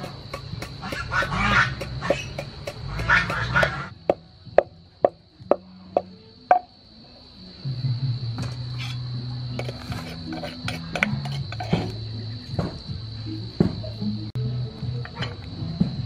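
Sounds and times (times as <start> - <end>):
pestle pounding in wooden mortar: 0.0 - 6.6, 9.6 - 11.9
background music: 0.0 - 16.0.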